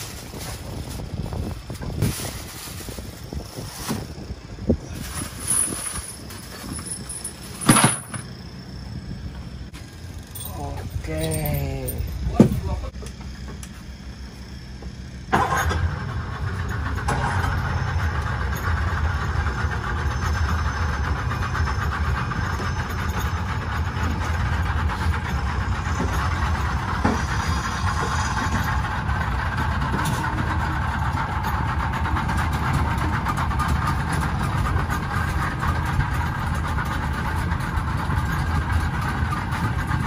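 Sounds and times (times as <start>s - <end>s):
outboard motors idling: 0.0s - 40.0s.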